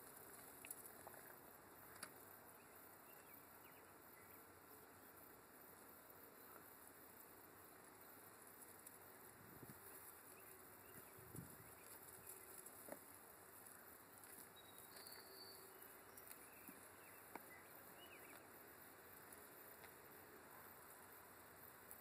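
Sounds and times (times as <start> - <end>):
faint outdoor hiss: 0.0 - 22.0
faint high chirp: 14.5 - 18.5.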